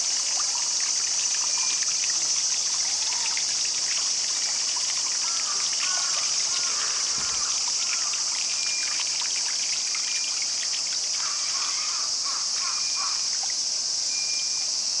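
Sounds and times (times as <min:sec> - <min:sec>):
water running and trickling: 0:00.0 - 0:15.0
faint high chirps: 0:08.5 - 0:09.2, 0:14.1 - 0:14.8.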